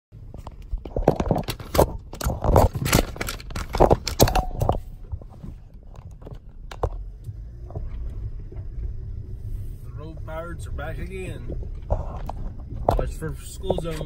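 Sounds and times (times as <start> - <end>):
phone being handled: 0.4 - 6.9.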